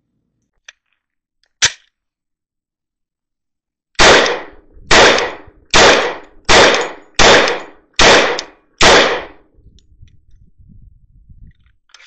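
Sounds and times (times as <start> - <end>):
pistol shots: 4.0 - 9.5.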